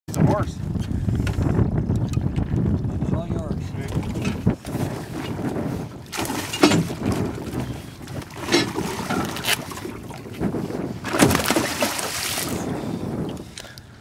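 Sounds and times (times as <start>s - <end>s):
wind on microphone: 0.1s - 14.0s.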